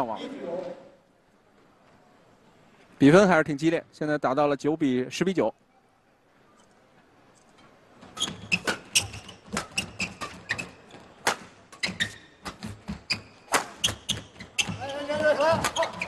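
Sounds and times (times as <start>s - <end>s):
court shoes squeaking: 7.3s - 16.0s
racket striking shuttlecock: 8.6s - 10.5s, 11.2s - 16.0s.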